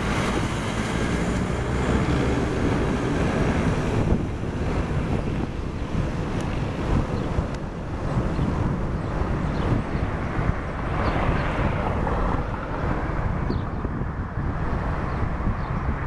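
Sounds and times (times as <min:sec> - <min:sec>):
turboprop plane taxiing: 0:00.0 - 0:16.0
wind buffeting microphone: 0:00.0 - 0:16.0.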